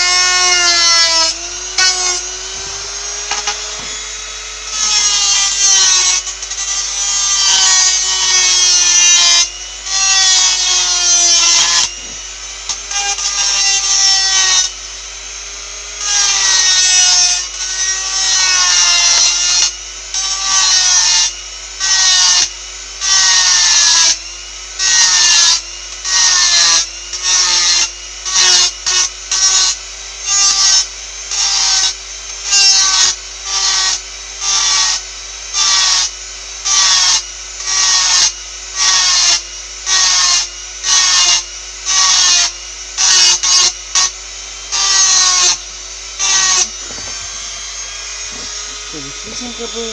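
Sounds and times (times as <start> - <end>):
harsh grinding rasps: 0.0 - 14.7, 36.7 - 49.9
small power tool grinding: 0.0 - 49.9.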